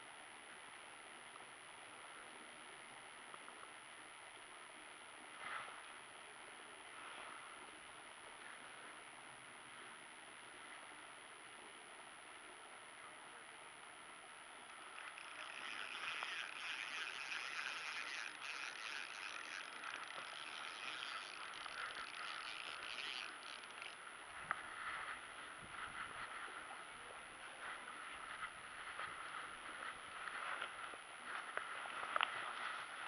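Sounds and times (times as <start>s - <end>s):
sharp reel clicks: 14.7s - 24.0s
fishing reel whirring: 14.7s - 24.8s.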